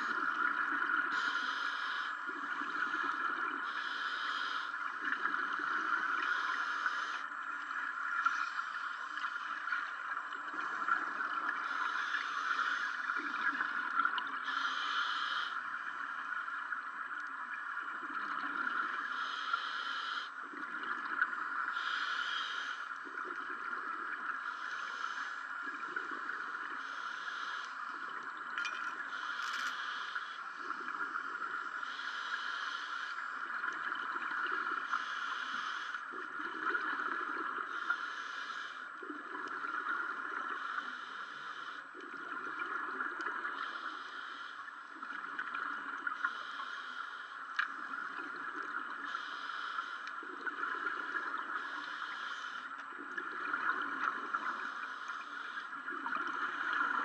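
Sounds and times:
steady hiss: 0.0s - 28.3s, 29.0s - 57.0s
regulator breathing hiss: 1.1s - 4.9s, 5.6s - 7.2s, 11.6s - 13.2s, 14.4s - 15.6s, 19.1s - 20.4s, 21.7s - 22.9s, 24.4s - 25.5s, 26.8s - 27.9s, 29.1s - 30.7s, 31.8s - 33.3s, 34.9s - 36.0s, 37.7s - 38.9s, 40.5s - 41.9s, 43.5s - 44.7s, 46.2s - 47.4s, 49.0s - 50.1s, 51.6s - 52.7s, 54.3s - 55.7s.

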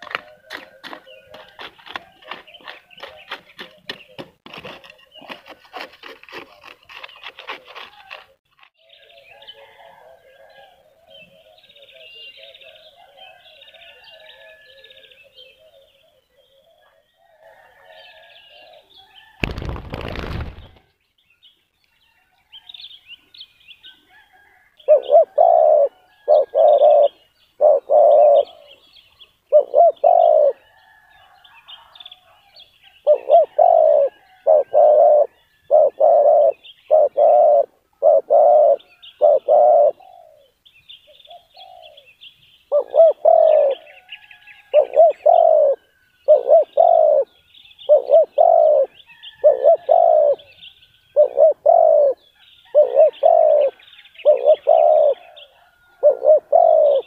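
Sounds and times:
doves cooing: 0.0s - 5.5s, 24.2s - 28.9s, 29.5s - 42.1s, 42.7s - 57.0s
small birds chirping: 0.0s - 57.0s.

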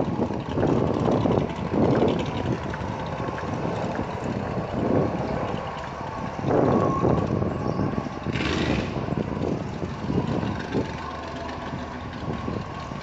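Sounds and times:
distant car engines running: 0.0s - 13.0s
wind noise on microphone: 0.0s - 13.0s.

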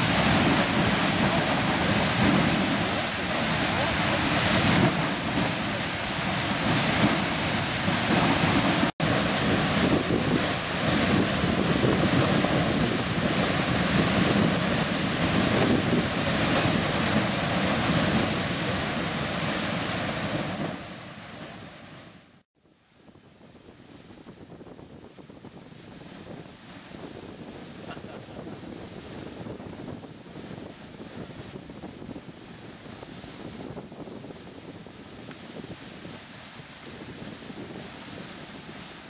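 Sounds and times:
geyser hissing rush: 0.0s - 22.0s.

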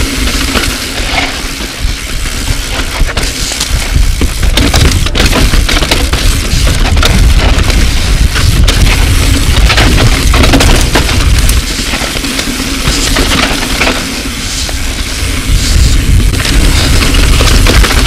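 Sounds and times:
bike rattling over rocks: 0.0s - 18.0s
wind on microphone: 1.8s - 12.1s, 14.4s - 18.0s.

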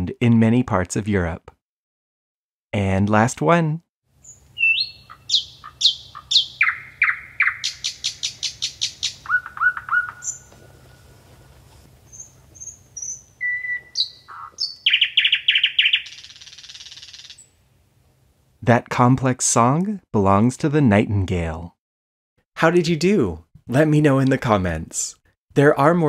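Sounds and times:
nightingale singing: 4.2s - 11.2s, 12.1s - 17.6s.

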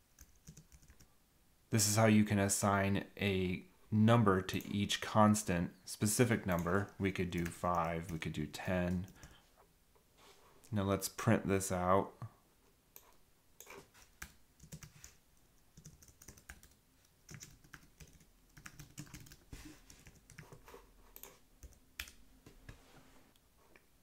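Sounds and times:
faint typing on keyboard: 0.0s - 1.1s, 6.4s - 9.6s, 12.9s - 22.8s.

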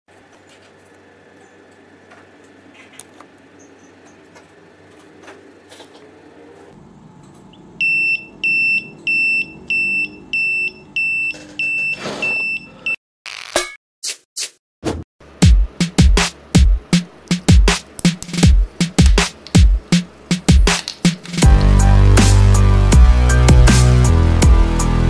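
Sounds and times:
alarm buzzer beeping: 7.8s - 13.0s.

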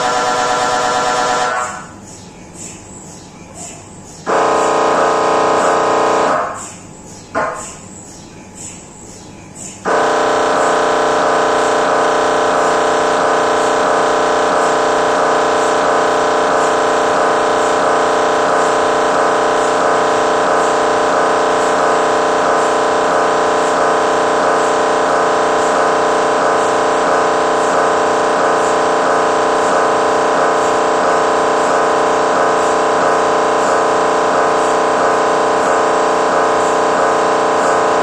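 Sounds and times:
mri scanner buzzing drone: 0.0s - 38.0s.

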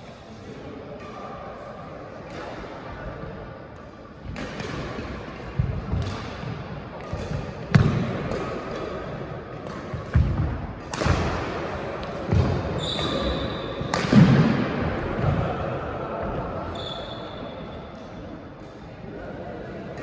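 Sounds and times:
racket smacking shuttlecock: 7.0s - 13.1s, 13.8s - 14.4s.

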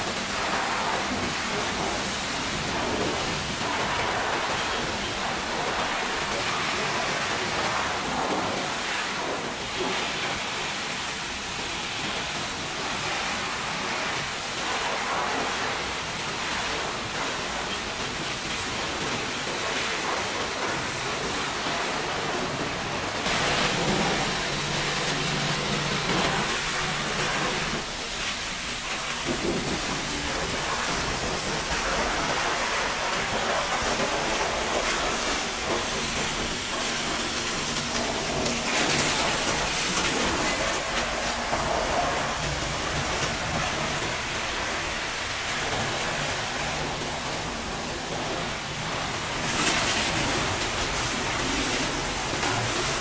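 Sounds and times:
water spattering off metal: 23.2s - 46.1s
pressure washer spraying: 23.2s - 53.0s.

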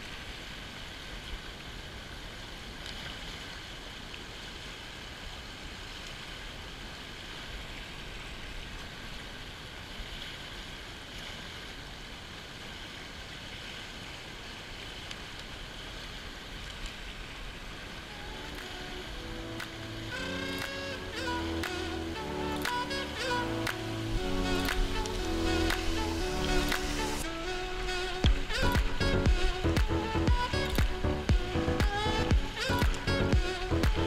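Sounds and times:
river water rushing over stones: 0.0s - 34.0s
music: 18.1s - 34.0s.

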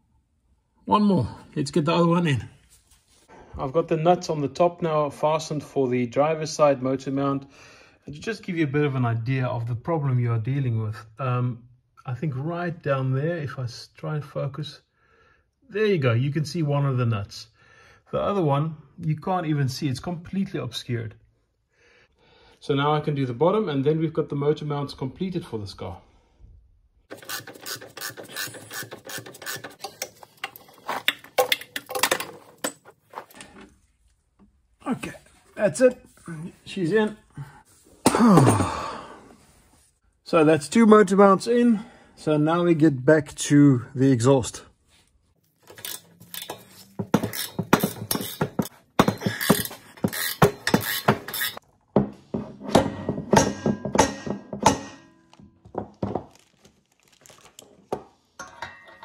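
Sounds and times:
ratchet wrench clicking: 27.1s - 29.9s, 45.7s - 48.7s, 49.4s - 51.6s.

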